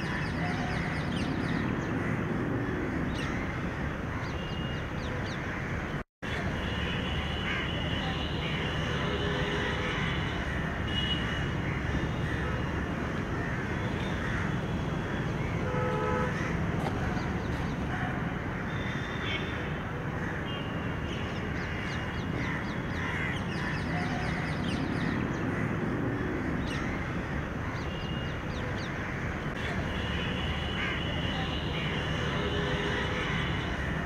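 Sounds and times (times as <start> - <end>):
crows cawing: 5.4 - 5.9, 9.9 - 15.2, 21.6 - 27.9, 28.9 - 29.7, 30.8 - 31.1.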